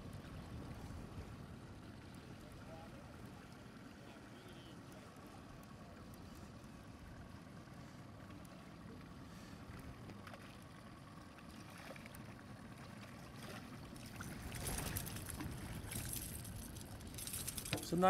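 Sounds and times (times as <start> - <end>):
wind: 0.0 - 18.0
river water washing: 7.8 - 18.0.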